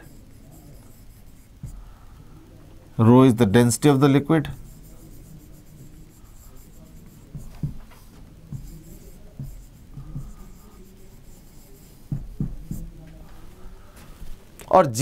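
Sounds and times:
marker pen scratching on board: 0.0 - 1.9, 4.4 - 13.2.

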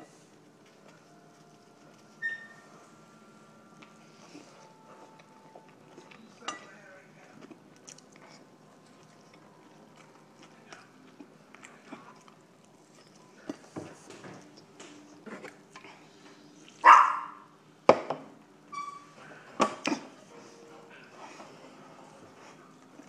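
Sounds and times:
chewing: 3.8 - 16.8.

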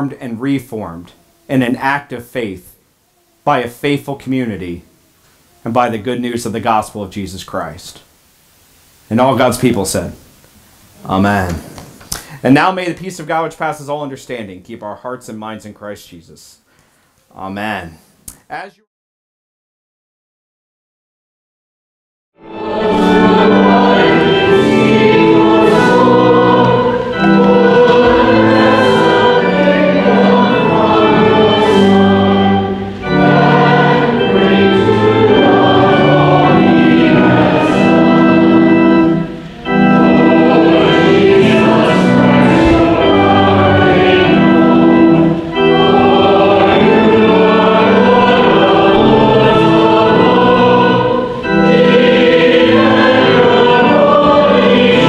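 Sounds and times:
group singing a hymn: 22.4 - 55.0
organ: 22.4 - 55.0.

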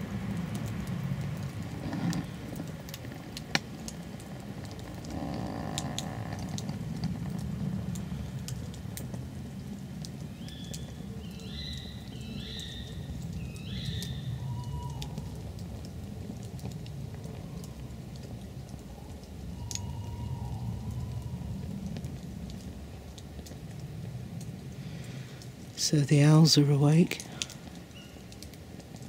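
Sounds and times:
rain pattering on foliage: 0.0 - 29.0
bird rising calls: 10.4 - 15.3, 18.9 - 21.5.

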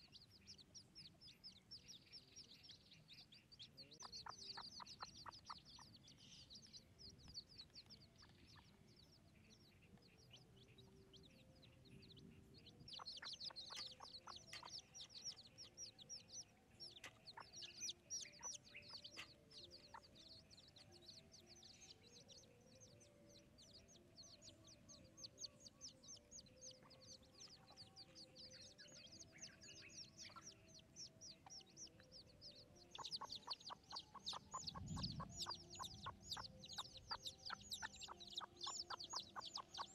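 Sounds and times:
chicks peeping: 0.0 - 39.9
hen clucking: 3.9 - 6.0, 12.9 - 15.4, 16.9 - 20.2, 32.9 - 39.9.

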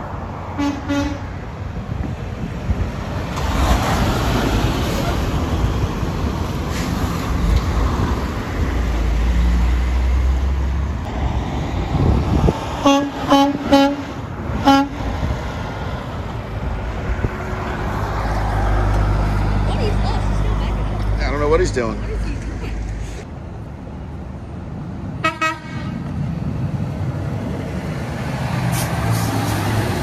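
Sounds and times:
trucks driving past: 0.0 - 30.0
truck horn short toots: 0.6 - 1.3, 12.8 - 15.0, 25.2 - 26.0.

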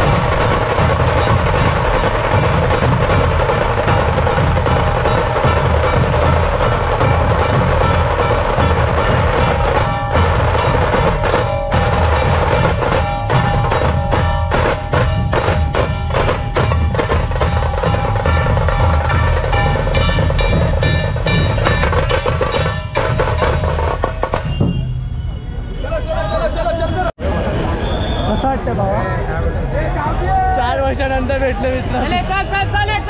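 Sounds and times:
drumming: 0.0 - 25.3.

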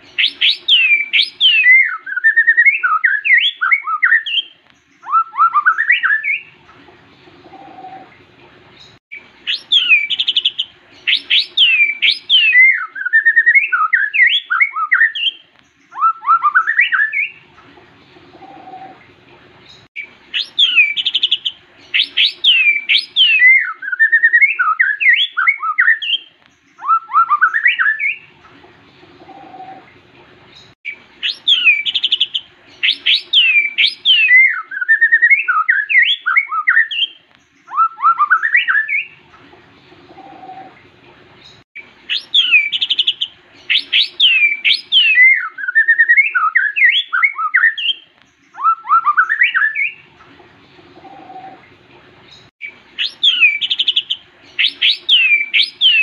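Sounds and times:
bird singing whistles: 0.2 - 6.6, 9.5 - 17.4, 20.3 - 28.3, 31.2 - 39.2, 42.1 - 50.1, 52.6 - 56.0.

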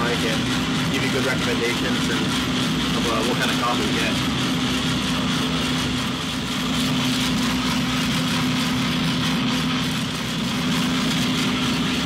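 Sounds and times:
coffee roaster mechanical hum: 0.0 - 12.0.

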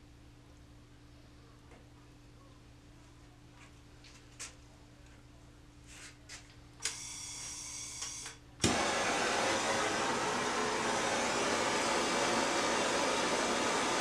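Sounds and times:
gas torch lighting with a pop: 8.6 - 8.9
gas hissing: 8.6 - 14.0.

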